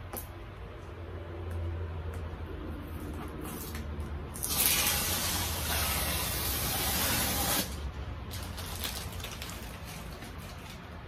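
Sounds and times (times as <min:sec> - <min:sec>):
packing tape peeling off box: 0:04.4 - 0:10.8.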